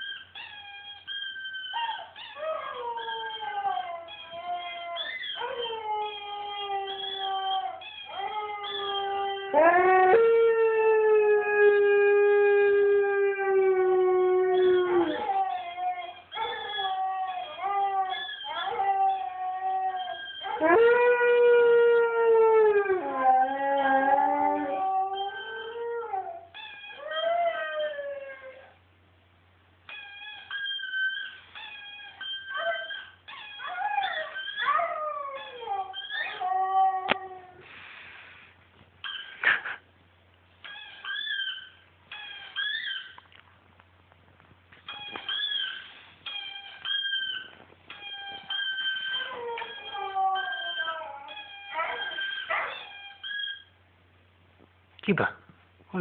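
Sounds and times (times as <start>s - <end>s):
dog whining: 0.0s - 10.1s, 14.4s - 21.3s, 22.9s - 28.8s, 29.9s - 37.6s, 40.6s - 43.2s, 44.8s - 53.8s
dog howling: 1.7s - 28.8s, 48.0s - 53.6s.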